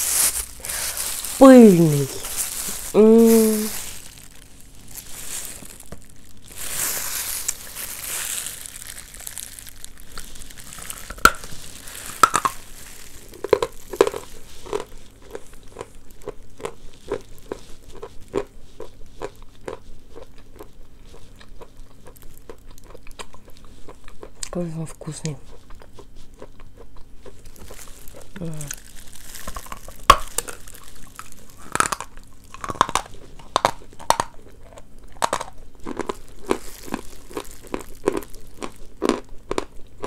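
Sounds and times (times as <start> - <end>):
paper wrapping rustling: 0.0 - 14.6, 27.5 - 31.4
crunchy chewing: 0.0 - 40.0.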